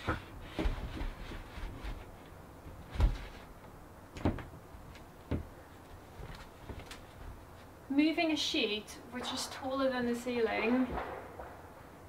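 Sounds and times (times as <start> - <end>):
wooden sheet knocking and bumping: 0.0 - 3.5, 4.1 - 4.6, 5.3 - 5.5.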